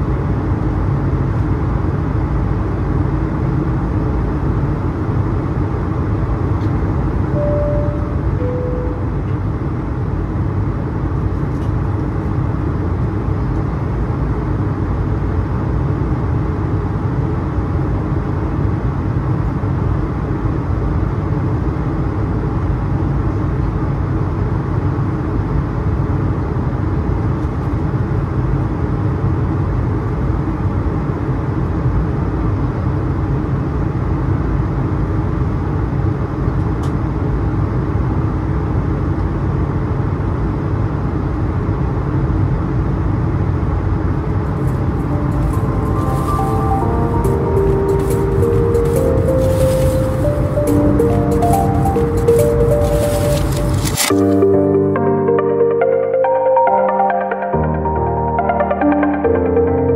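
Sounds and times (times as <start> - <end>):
low engine drone: 0.0 - 27.4, 43.4 - 59.9.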